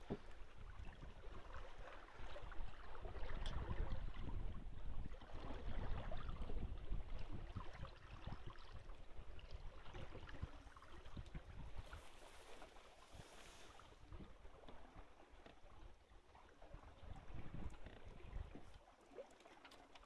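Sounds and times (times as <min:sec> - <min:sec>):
wind rumbling on microphone: 0:00.0 - 0:16.0, 0:16.6 - 0:18.8
water swishing past hull: 0:00.0 - 0:20.0.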